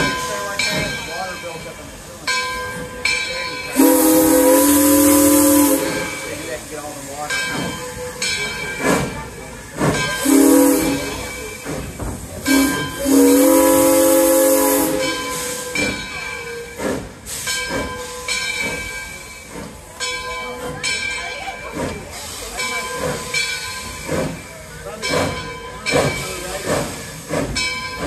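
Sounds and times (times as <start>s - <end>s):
steam hissing: 0.0s - 28.0s
train rattling: 0.0s - 28.0s
steam locomotive whistle: 3.7s - 6.4s, 10.2s - 11.4s, 12.5s - 16.8s.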